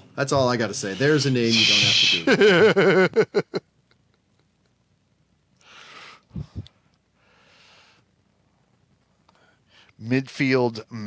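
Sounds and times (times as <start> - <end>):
low voiced sound: 1.0 - 2.4
person sighing: 1.0 - 2.4.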